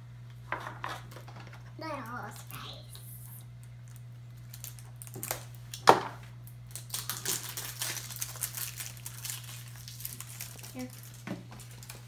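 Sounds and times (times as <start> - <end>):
plastic packaging clicks: 3.6 - 12.0
plastic packaging crinkling: 3.8 - 5.8, 6.5 - 12.0.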